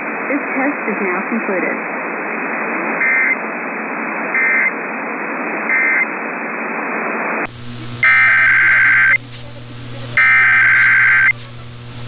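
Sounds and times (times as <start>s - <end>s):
radio static hiss: 0.0s - 12.0s
low hum: 7.5s - 12.0s
digital data warble bursts: 8.0s - 9.2s, 10.1s - 11.4s.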